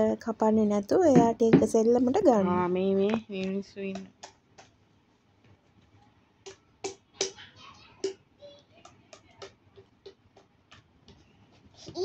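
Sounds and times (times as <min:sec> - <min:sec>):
hands tapping coconut husk: 0:03.9 - 0:04.8, 0:06.4 - 0:07.4, 0:08.8 - 0:11.2.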